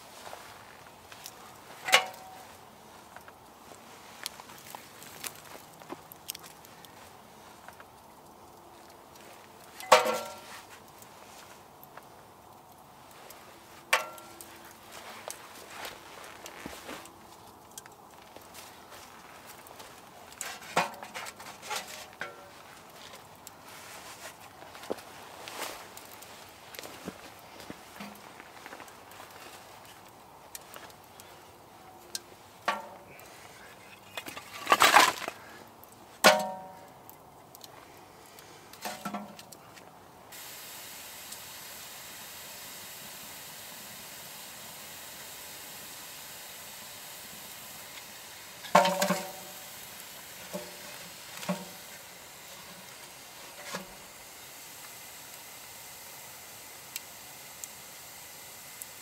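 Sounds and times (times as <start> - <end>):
fire cracking: 0.0 - 59.0
wood fire hissing: 0.0 - 59.0
logs clanking against metal stove: 1.1 - 2.6, 9.7 - 10.9, 13.3 - 16.0, 19.9 - 23.2, 27.9 - 28.3, 32.1 - 37.7, 38.7 - 39.6, 47.8 - 54.1.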